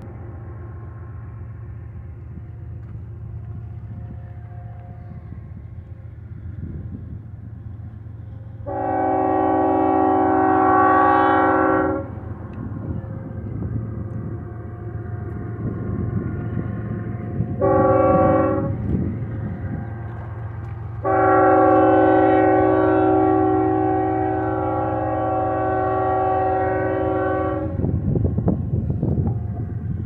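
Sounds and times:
train rumbling: 0:00.0 - 0:30.0
locomotive air horn blasts: 0:08.6 - 0:12.4, 0:17.0 - 0:19.1, 0:21.0 - 0:28.0.

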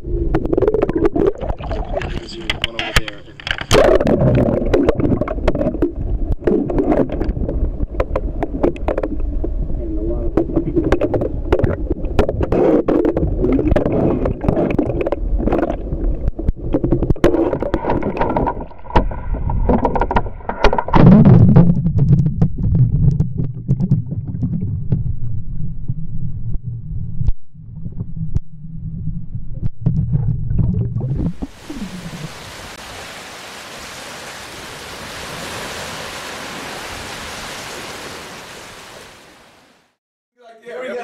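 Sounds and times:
muffled water sloshing underwater: 0:00.0 - 0:02.7, 0:03.3 - 0:40.0
sharp knocks and clicks: 0:16.7 - 0:21.1.

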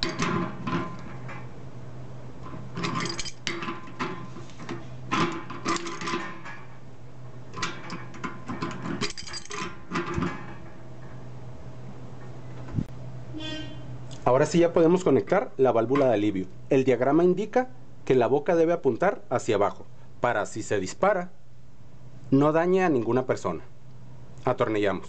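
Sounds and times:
metal clicking and scraping: 0:00.0 - 0:01.5, 0:02.4 - 0:06.8, 0:07.5 - 0:11.2
low steady hum: 0:00.0 - 0:25.0.

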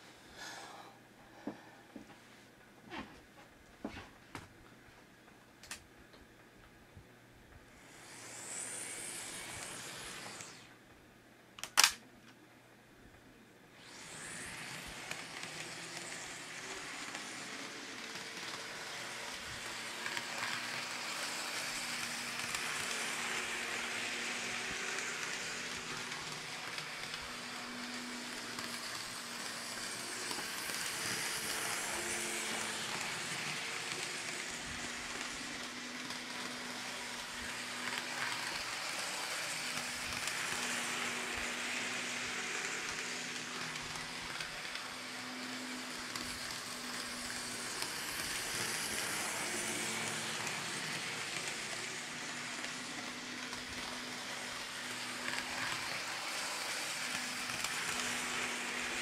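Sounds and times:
model train wheels on rails: 0:07.6 - 0:10.8, 0:11.6 - 0:12.0, 0:13.8 - 0:59.0
small electric motor humming: 0:07.8 - 0:10.7, 0:13.8 - 0:59.0
small clicks: 0:11.6 - 0:12.4.

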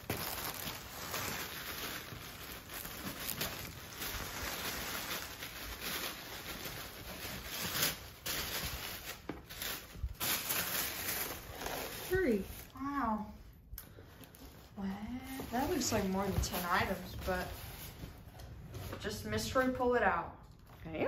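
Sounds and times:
tissue paper rustling: 0:00.0 - 0:13.3, 0:14.2 - 0:19.5.

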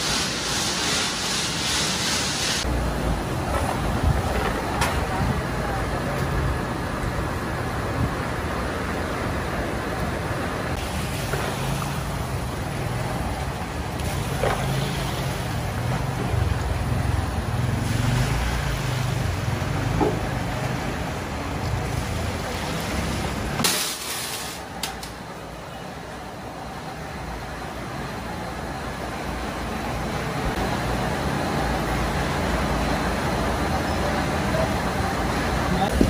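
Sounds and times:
water splashing over screws: 0:22.6 - 0:24.6.

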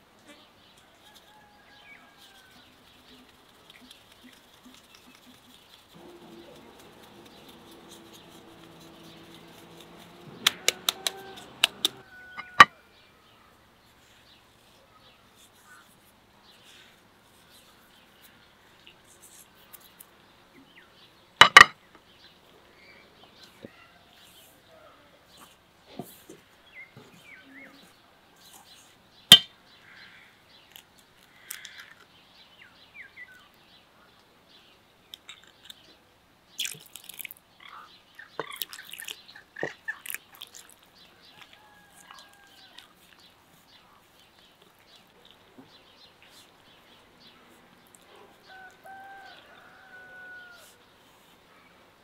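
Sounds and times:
hand working flour in a bowl: 0:01.0 - 0:12.6, 0:38.4 - 0:46.8.

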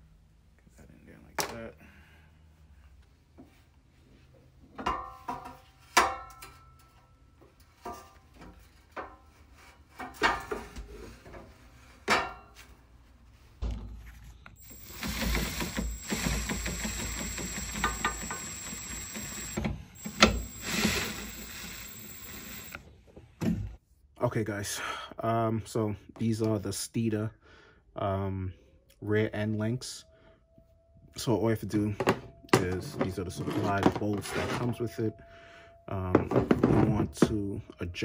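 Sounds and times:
cordless drill running: 0:14.6 - 0:22.8.

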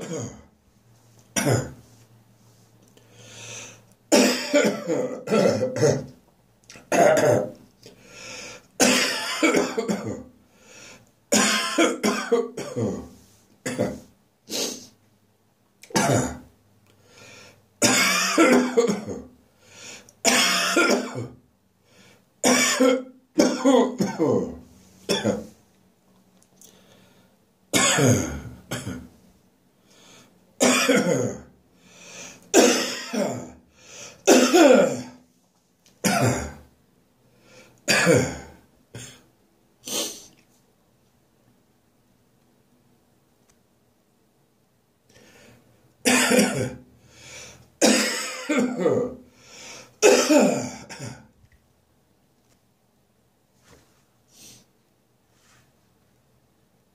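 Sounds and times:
person clearing throat: 0:00.0 - 0:00.5, 0:01.4 - 0:01.8, 0:04.1 - 0:07.6, 0:08.8 - 0:10.3, 0:11.3 - 0:14.9, 0:15.8 - 0:16.5, 0:17.8 - 0:19.3, 0:20.2 - 0:21.4, 0:22.4 - 0:25.6, 0:27.8 - 0:29.2, 0:30.6 - 0:31.5, 0:32.5 - 0:33.6, 0:34.3 - 0:35.2, 0:36.0 - 0:36.7, 0:37.9 - 0:39.2, 0:46.1 - 0:46.8, 0:47.8 - 0:49.2, 0:50.0 - 0:51.3
person coughing harshly: 0:00.0 - 0:00.5, 0:01.4 - 0:01.8, 0:04.1 - 0:06.2, 0:06.8 - 0:07.6, 0:08.8 - 0:10.3, 0:11.3 - 0:14.1, 0:15.9 - 0:16.5, 0:17.8 - 0:19.3, 0:20.2 - 0:21.4, 0:22.4 - 0:25.6, 0:27.7 - 0:29.1, 0:30.6 - 0:31.5, 0:32.5 - 0:33.6, 0:34.2 - 0:35.2, 0:36.0 - 0:36.7, 0:37.9 - 0:39.2, 0:46.1 - 0:46.8, 0:47.8 - 0:49.2, 0:50.0 - 0:51.3.

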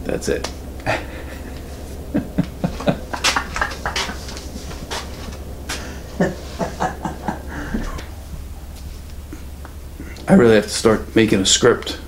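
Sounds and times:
steady low hum: 0:00.0 - 0:12.0
knocks and rustles of movement: 0:00.3 - 0:11.2
man chuckling: 0:00.8 - 0:08.6.

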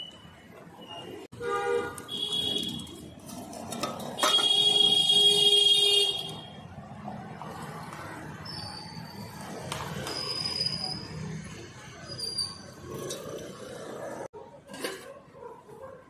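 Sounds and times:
street noise: 0:00.0 - 0:16.0
vehicle horns honking: 0:01.3 - 0:03.0, 0:04.2 - 0:06.6.

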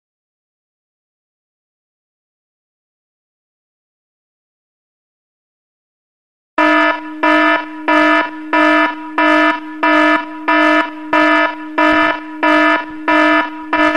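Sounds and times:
pulsing buzzy alarm tone: 0:06.6 - 0:13.9.

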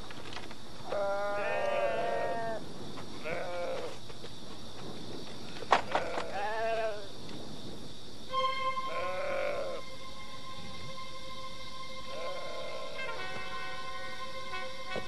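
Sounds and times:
sheep bleating: 0:00.9 - 0:02.6, 0:08.9 - 0:09.8, 0:12.1 - 0:13.1.

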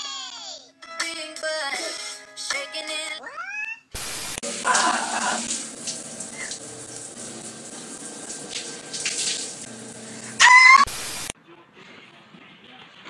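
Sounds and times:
shower water spray hissing: 0:04.0 - 0:11.4.

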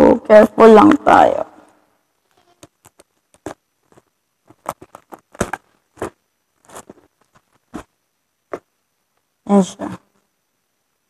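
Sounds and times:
plastic straps crackling and scraping: 0:02.2 - 0:07.9.

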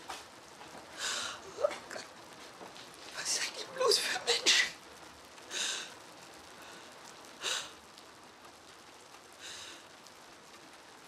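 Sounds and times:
low steady hiss: 0:00.0 - 0:11.0
woman breathing: 0:00.9 - 0:01.6, 0:05.5 - 0:07.8, 0:09.4 - 0:09.9.

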